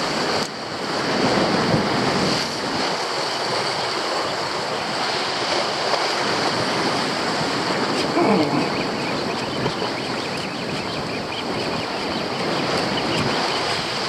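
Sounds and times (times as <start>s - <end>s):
surf breaking over rocks: 0.0s - 10.5s.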